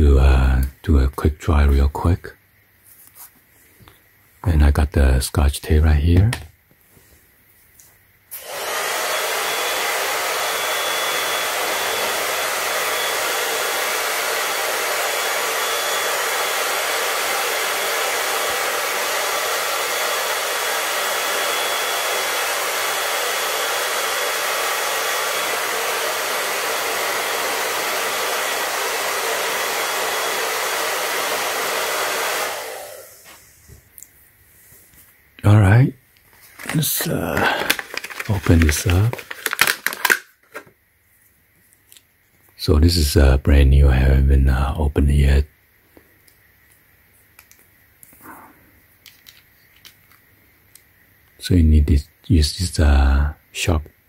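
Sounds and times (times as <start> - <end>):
hair dryer blowing: 8.3 - 33.5, 36.7 - 40.0.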